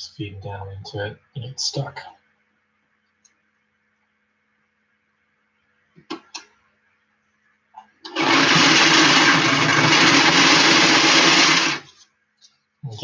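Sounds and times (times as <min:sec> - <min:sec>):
sewing machine running: 0:08.1 - 0:11.9.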